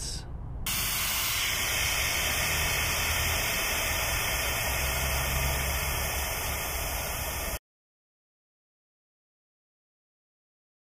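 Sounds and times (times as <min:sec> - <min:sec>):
low steady hum: 0:00.0 - 0:07.6
air hissing at valve: 0:00.7 - 0:07.6.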